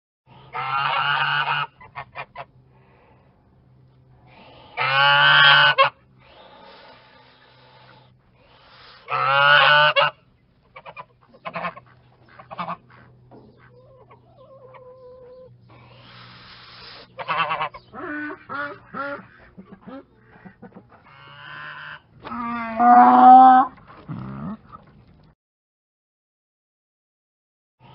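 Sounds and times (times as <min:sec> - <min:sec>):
steady low hum: 0:00.3 - 0:22.3
geese honking: 0:00.4 - 0:02.6, 0:04.3 - 0:22.9.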